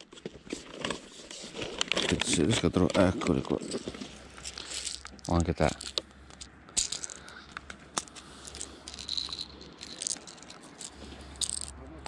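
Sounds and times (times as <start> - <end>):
plastic tackle boxes rattling: 0.0 - 6.0, 8.4 - 11.8.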